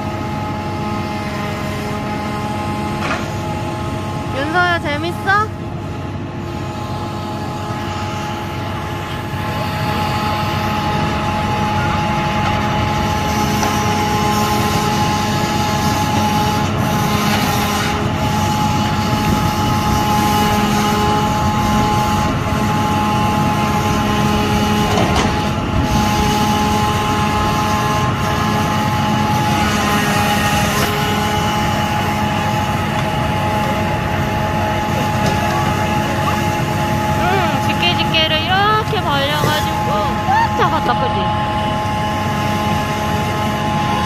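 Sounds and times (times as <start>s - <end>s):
steady hydraulic whine: 0.0s - 44.0s
truck engine and hydraulic drone: 0.0s - 44.0s.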